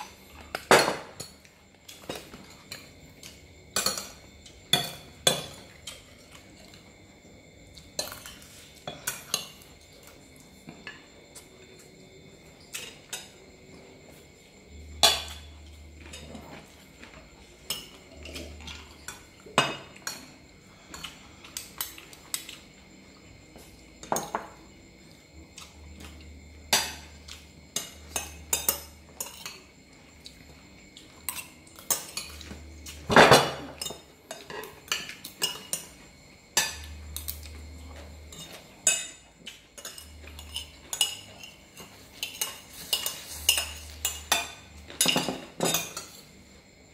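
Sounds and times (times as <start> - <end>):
spoons clinking on plates: 0.0 - 6.8, 14.9 - 22.7, 25.6 - 29.8, 31.0 - 46.3.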